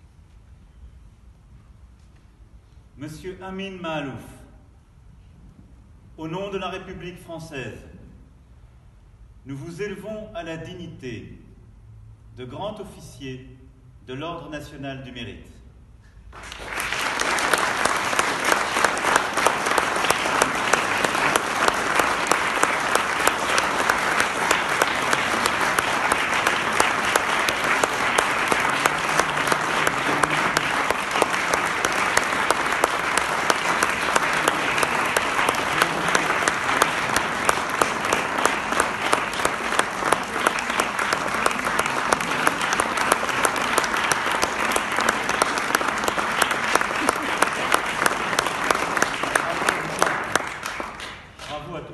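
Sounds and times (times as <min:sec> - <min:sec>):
audience applauding: 0:16.3 - 0:51.6
sharp nearby claps: 0:16.3 - 0:51.7.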